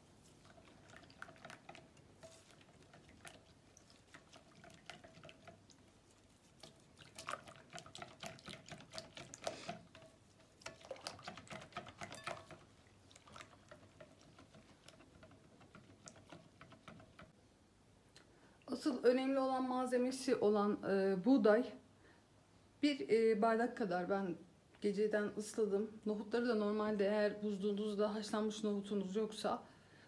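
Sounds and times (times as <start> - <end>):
liquid sloshing: 0.0 - 17.3
whisk wires clicking against glass: 9.2 - 12.7.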